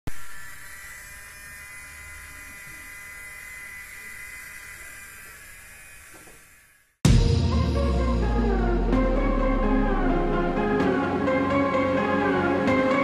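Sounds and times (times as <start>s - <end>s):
small motor buzzing whine: 0.1s - 7.0s.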